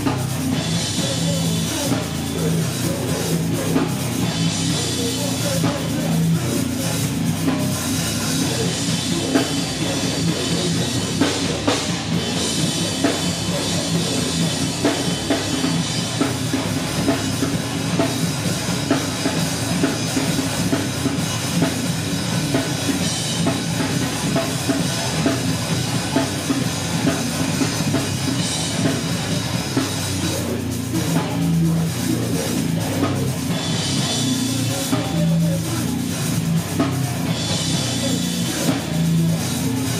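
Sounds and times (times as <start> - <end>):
heavy rock band playing live: 0.0 - 39.9
pounding drum kit: 0.0 - 39.9.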